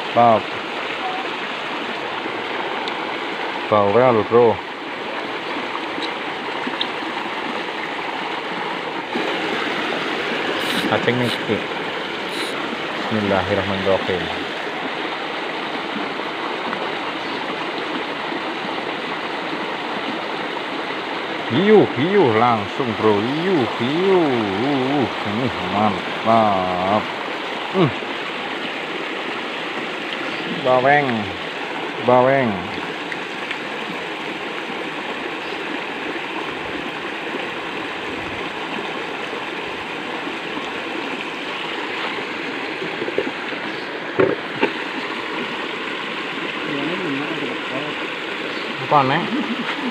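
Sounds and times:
water rushing along a ditch: 0.0 - 49.9.

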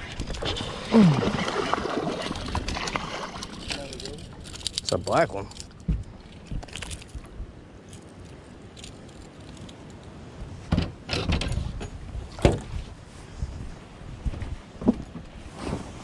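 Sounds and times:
knocks and thumps on boat deck: 10.6 - 12.8, 14.2 - 15.4.

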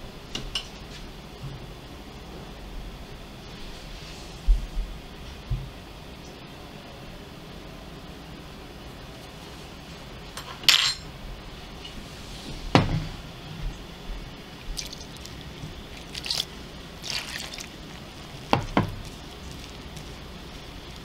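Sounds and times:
steady hiss: 11.1 - 21.0.

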